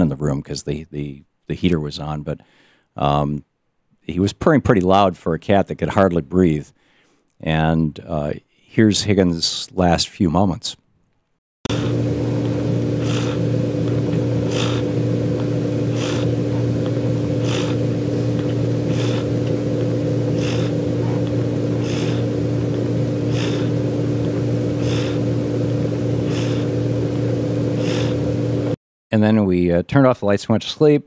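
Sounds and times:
cat purring and laboured breathing: 11.7s - 26.9s, 27.8s - 28.3s
heater fan hum: 11.7s - 28.8s.

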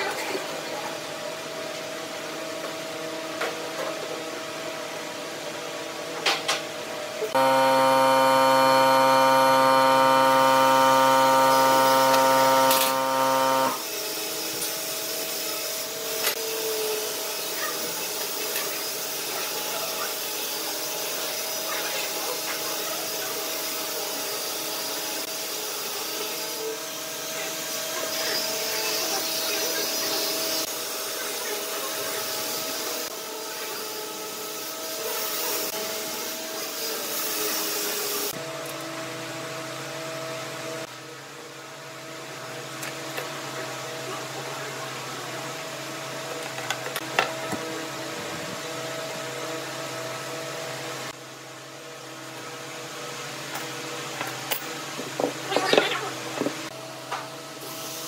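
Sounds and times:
loud droning hum: 7.4s - 13.8s
steady electrical hum: 7.4s - 13.8s.

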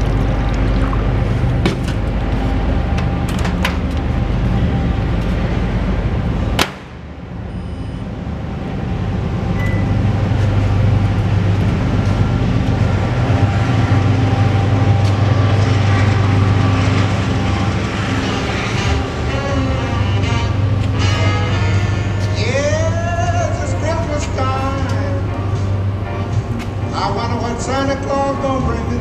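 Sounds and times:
microwave oven humming: 7.5s - 23.4s
keypad beep: 9.6s - 10.0s.

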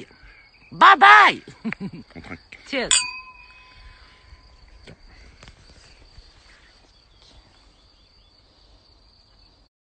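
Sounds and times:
high-pitched insect drone: 1.6s - 5.2s.

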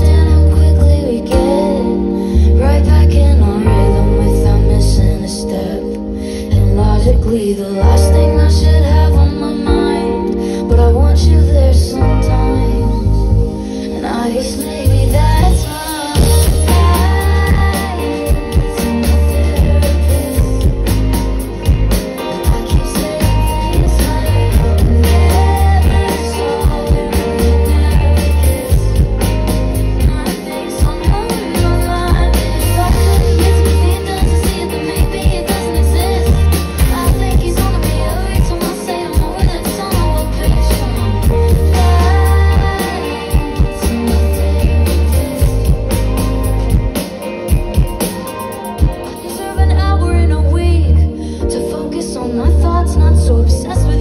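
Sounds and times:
heavy bass: 0.0s - 5.6s, 6.5s - 9.8s, 10.6s - 13.8s, 14.6s - 48.1s, 52.4s - 54.0s
electric guitar: 0.0s - 54.0s
person singing: 0.0s - 54.0s
drum kit: 14.5s - 49.6s.

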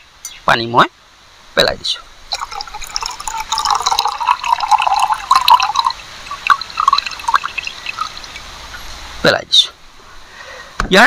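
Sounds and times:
water dripping off a steel bowl: 2.3s - 8.8s.

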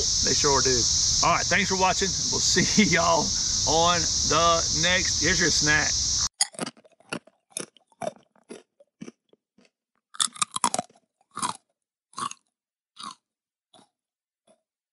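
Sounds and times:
cicada chorus: 0.0s - 6.3s
crunchy chewing: 6.3s - 14.6s.

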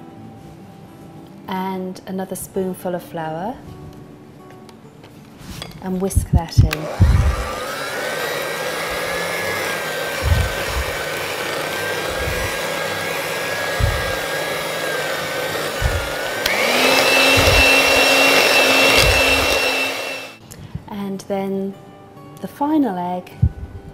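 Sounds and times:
electric hand mixer whirring: 6.6s - 20.4s
low thuds: 10.2s - 11.0s, 12.0s - 12.6s, 13.7s - 14.2s, 15.8s - 19.7s.

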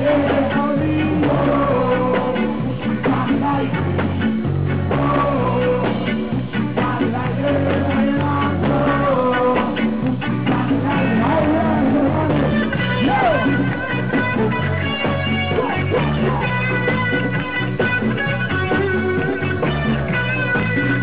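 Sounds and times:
person singing: 0.0s - 4.1s, 4.9s - 16.6s
bass line: 0.0s - 21.0s
drums: 0.0s - 21.0s
electric guitar: 0.0s - 21.0s.

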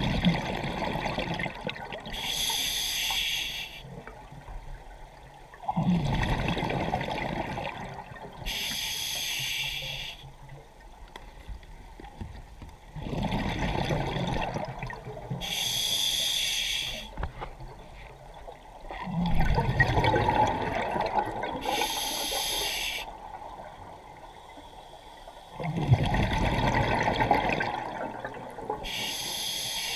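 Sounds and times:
regulator hiss on inhalation: 2.2s - 3.9s, 8.5s - 10.3s, 15.4s - 17.2s, 21.6s - 23.1s, 28.9s - 29.9s.

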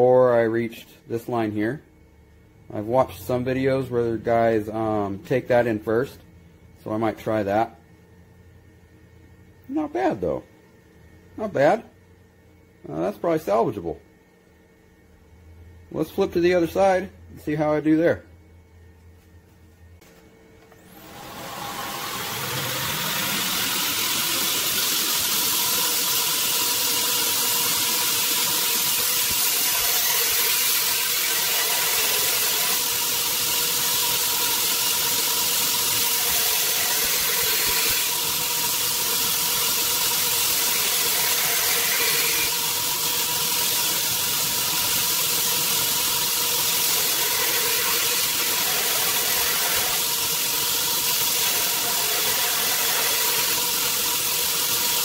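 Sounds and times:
belt grinder whining: 20.7s - 55.0s
blade grinding rasp: 21.0s - 42.6s, 45.4s - 53.8s.

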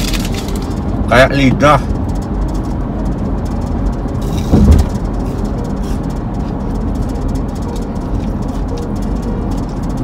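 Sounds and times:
car engine and road noise: 0.0s - 10.0s
short thump: 4.5s - 5.0s.

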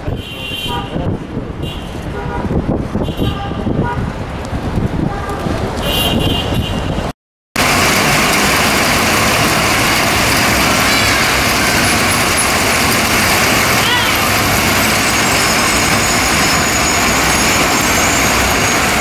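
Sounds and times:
road traffic rumbling: 0.0s - 19.0s
heavy rain on paving: 7.6s - 19.0s.

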